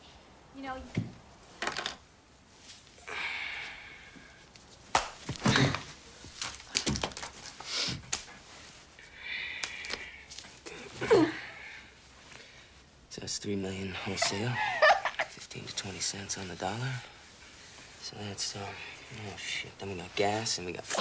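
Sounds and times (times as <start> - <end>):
soft hissing: 7.5 - 21.0.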